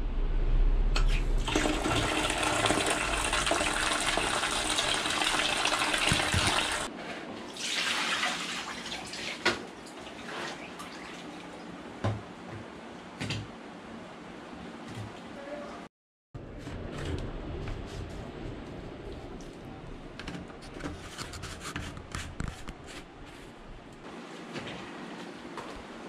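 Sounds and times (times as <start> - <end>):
water pouring from a tap: 1.4 - 6.9
clothes sloshing in water: 7.6 - 11.6.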